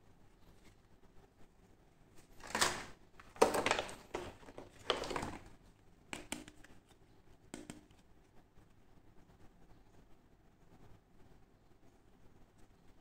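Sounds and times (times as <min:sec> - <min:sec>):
plastic packaging rustling: 0:02.2 - 0:05.6.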